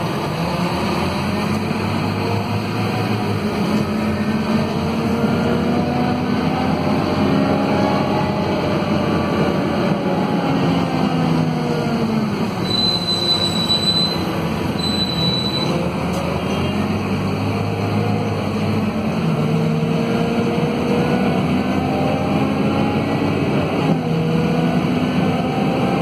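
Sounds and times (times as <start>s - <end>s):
bus diesel engine running: 0.0s - 26.0s
short high-pitched tones: 12.6s - 15.8s.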